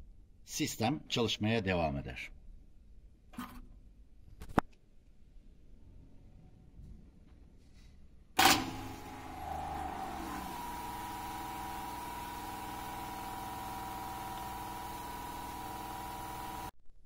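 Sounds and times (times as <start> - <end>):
water pump motor humming: 8.4 - 16.7.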